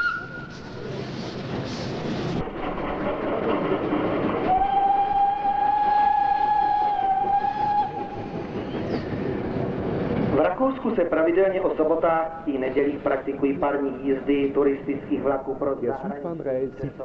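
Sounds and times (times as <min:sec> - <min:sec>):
steam locomotive whistle: 0:00.0 - 0:00.6, 0:04.5 - 0:08.4
slow-moving train running: 0:00.0 - 0:17.0.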